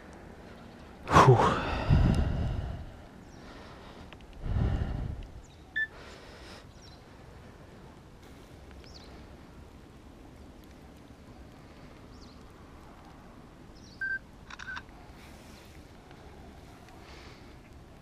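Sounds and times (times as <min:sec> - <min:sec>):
phone camera beep: 0:14.0 - 0:14.8.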